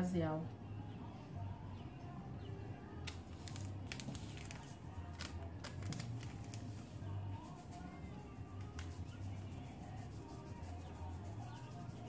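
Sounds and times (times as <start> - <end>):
paper sachet crinkling and tearing: 3.1 - 7.7.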